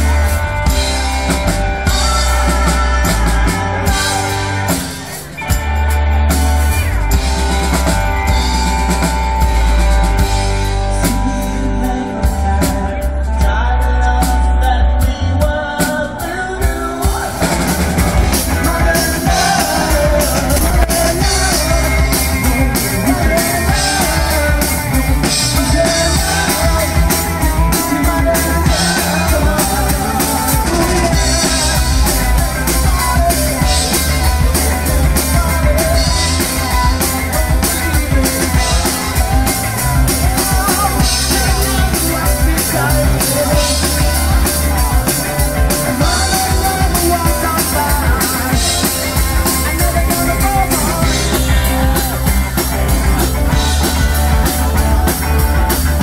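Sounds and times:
bass guitar: 0.0s - 56.0s
drum kit: 0.0s - 56.0s
electric guitar: 0.0s - 56.0s.

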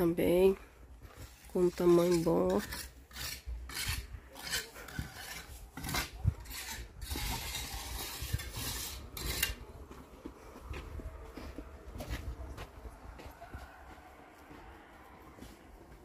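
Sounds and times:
footsteps on sandy dirt: 0.2s - 2.4s, 9.0s - 16.0s.

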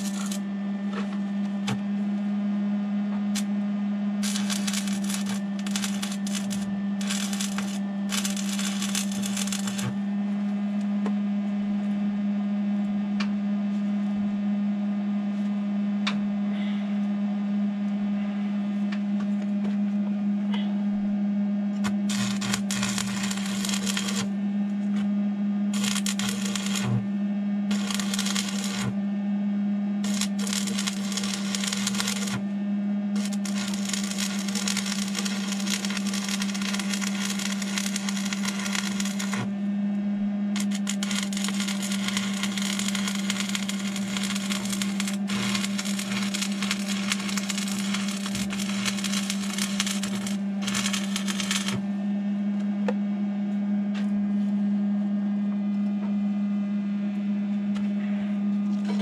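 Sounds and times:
welding arc crackling: 0.0s - 0.4s, 4.2s - 10.0s, 21.8s - 24.3s, 25.7s - 27.0s, 27.7s - 29.0s, 30.0s - 32.4s, 33.2s - 39.5s, 40.6s - 51.8s
steady hum: 0.0s - 59.0s.

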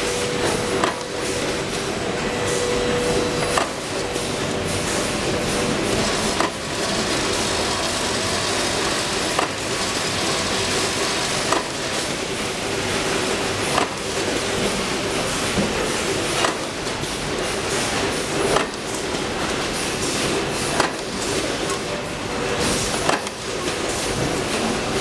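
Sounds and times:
machine hum: 0.0s - 16.2s.

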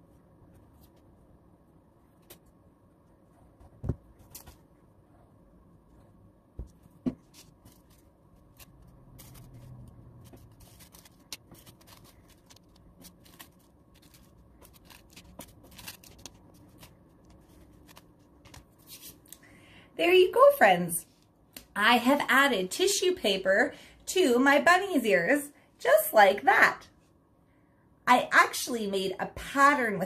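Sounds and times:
tissue paper crinkling: 7.3s - 19.3s.

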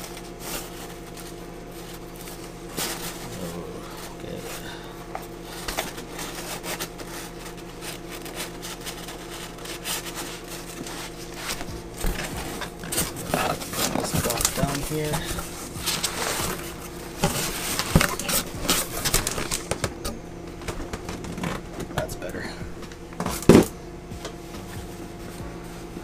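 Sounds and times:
packaging rustling: 0.0s - 26.0s
steady low hum: 0.0s - 26.0s.

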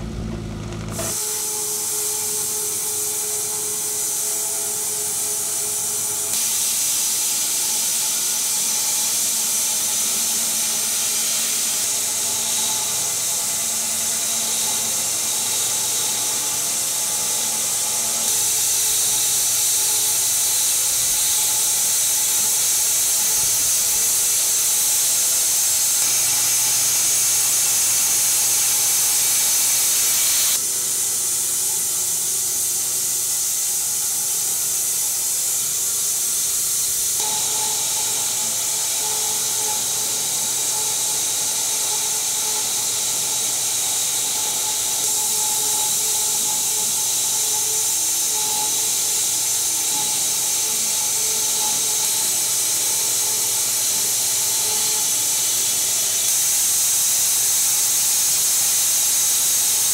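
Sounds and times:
low steady hum: 0.0s - 1.2s
bandsaw blade hissing through log: 1.0s - 59.9s.

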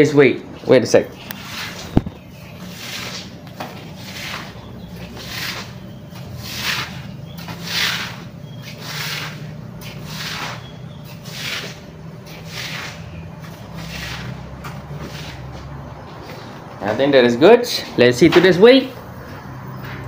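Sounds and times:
rhythmic rubbing on microphone: 1.2s - 16.6s.

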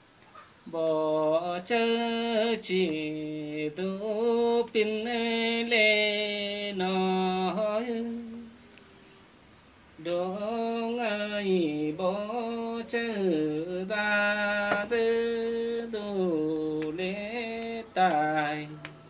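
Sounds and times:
person singing folk song: 0.6s - 8.8s, 10.0s - 19.0s.

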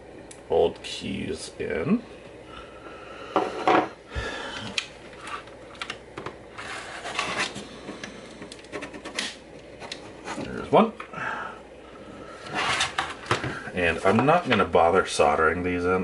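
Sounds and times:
scraping and rubbing: 6.6s - 8.0s, 12.4s - 13.2s.

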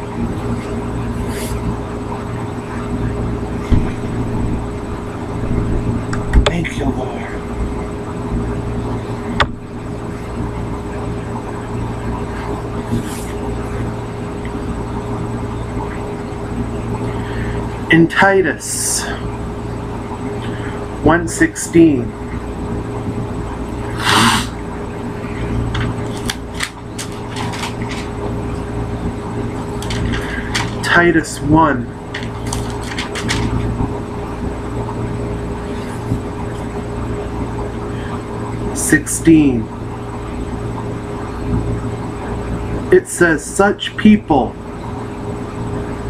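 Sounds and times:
electrical hum and hiss: 0.0s - 46.0s
paper pages rustling: 25.7s - 28.2s, 29.7s - 30.8s, 32.1s - 33.7s.

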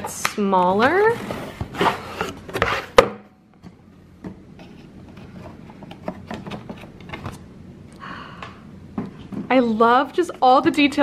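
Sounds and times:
cardboard rustling and tapping: 0.8s - 7.4s.

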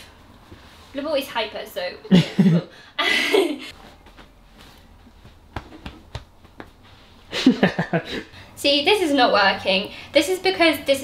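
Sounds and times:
woman speaking: 1.0s - 2.1s, 8.6s - 11.0s.

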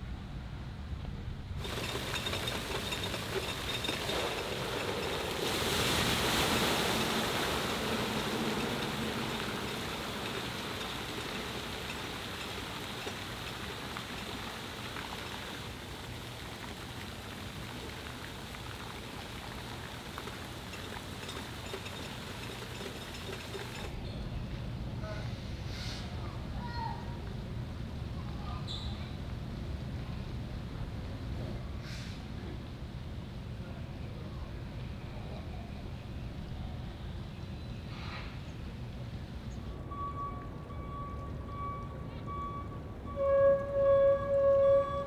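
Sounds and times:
water pouring and splashing: 1.6s - 24.0s.

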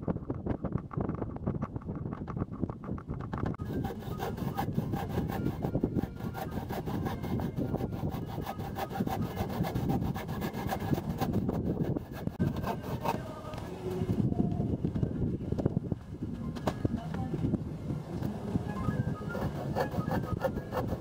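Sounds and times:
hand saw cutting wood: 3.6s - 13.5s, 19.2s - 21.0s.

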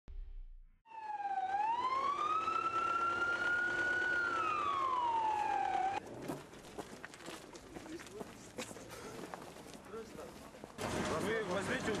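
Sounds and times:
emergency vehicle siren wailing: 0.9s - 6.0s.

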